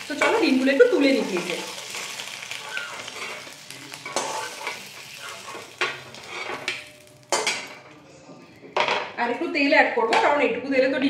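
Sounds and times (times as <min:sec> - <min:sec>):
eggs sizzling in hot oil: 0:00.0 - 0:07.7
metal spatula scraping pan: 0:00.1 - 0:07.9.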